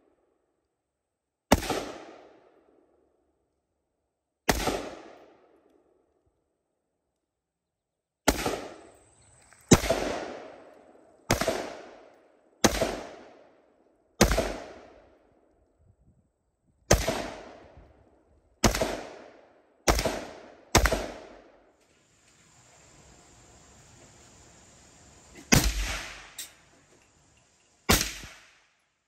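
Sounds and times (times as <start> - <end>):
rifle shots with echo: 1.5 - 2.8, 4.5 - 5.6, 8.2 - 8.9, 9.7 - 13.6, 14.2 - 15.2, 16.9 - 17.8, 18.6 - 21.6, 25.4 - 26.4, 27.9 - 28.8.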